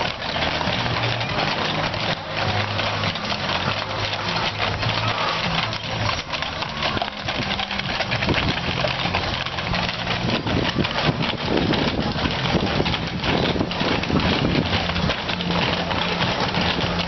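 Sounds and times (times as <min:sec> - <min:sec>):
horse hooves clip-clopping on pavement: 0:00.0 - 0:17.0.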